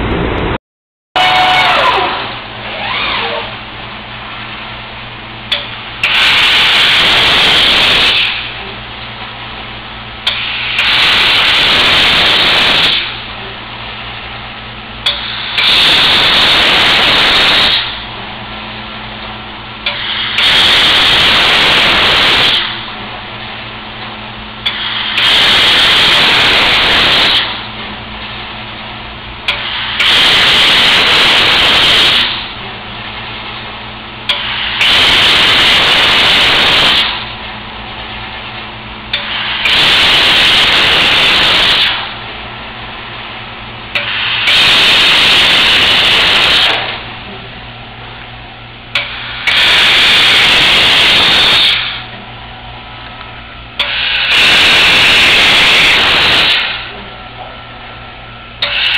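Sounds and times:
low machine hum: 0.0s - 0.6s, 1.2s - 6.1s, 8.3s - 10.8s, 13.0s - 15.6s, 17.8s - 20.4s, 22.6s - 25.3s, 27.4s - 30.1s, 32.2s - 34.8s, 37.1s - 39.7s, 41.9s - 44.5s, 46.8s - 49.6s, 51.8s - 54.4s, 56.7s - 58.9s
laser cutter gas jet hissing: 5.5s - 8.7s, 10.2s - 14.3s, 15.0s - 18.1s, 19.8s - 23.6s, 24.5s - 28.6s, 29.4s - 37.4s, 38.1s - 42.2s, 43.9s - 47.3s, 48.9s - 52.1s, 53.7s - 57.0s, 58.6s - 58.9s.

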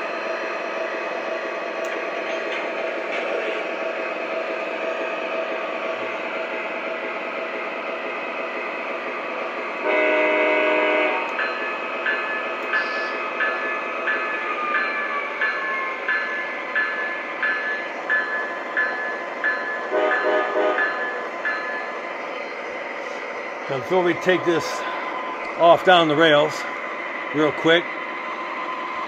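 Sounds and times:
diesel locomotive idling: 0.0s - 29.0s
train horn blast: 9.8s - 11.4s, 19.9s - 21.0s
locomotive bell ringing: 11.2s - 22.7s.

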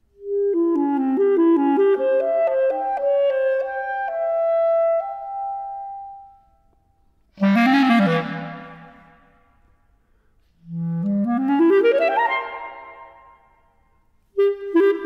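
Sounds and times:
solo clarinet improvisation: 0.1s - 5.7s, 7.3s - 9.4s, 10.5s - 13.5s, 14.2s - 15.0s.

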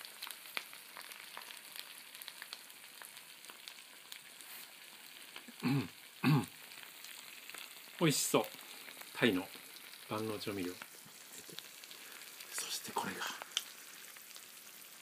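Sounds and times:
bacon and egg sizzling: 0.0s - 15.0s
person murmuring: 5.6s - 6.5s.

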